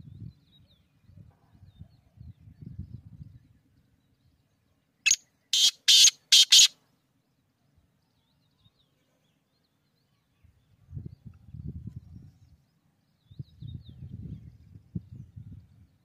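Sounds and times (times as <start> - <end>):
bird harsh grating call: 5.1 - 6.7.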